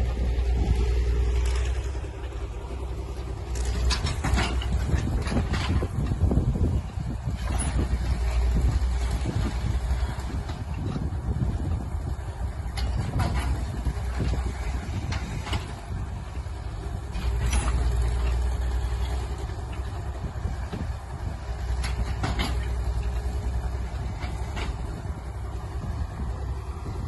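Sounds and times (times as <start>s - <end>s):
tractor diesel low rumble: 0.0s - 27.0s
sleigh hitches and chains clanking: 2.8s - 11.0s, 17.0s - 20.1s.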